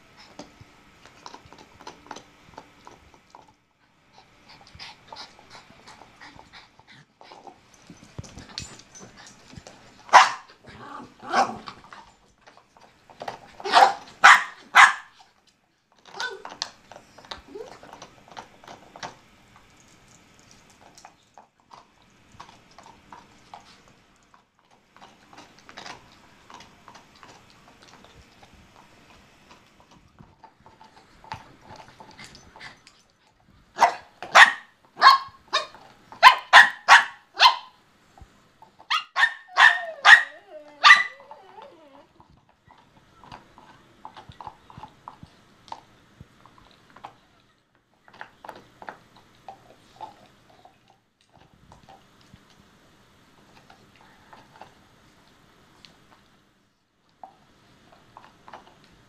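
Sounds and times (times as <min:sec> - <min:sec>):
dog barking: 0:10.1 - 0:10.5, 0:13.6 - 0:15.2, 0:33.8 - 0:37.8, 0:38.9 - 0:41.2
dog whining: 0:16.1 - 0:18.0, 0:38.9 - 0:43.8.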